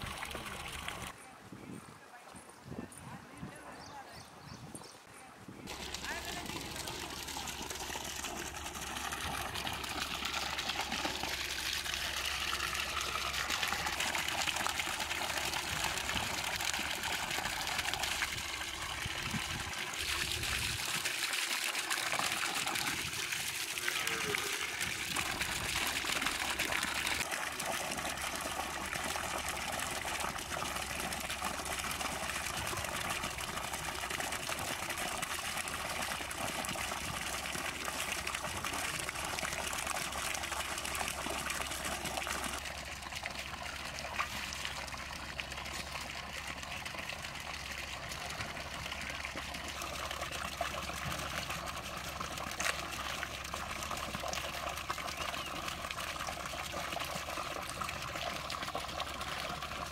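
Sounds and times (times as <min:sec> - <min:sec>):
water pouring and splashing: 0:00.0 - 0:01.2, 0:05.6 - 0:59.9.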